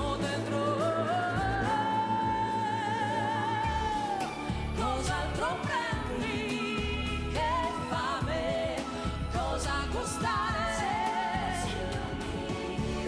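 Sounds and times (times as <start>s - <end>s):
pop band with bass and drums: 0.0s - 13.0s
woman singing: 0.0s - 13.0s.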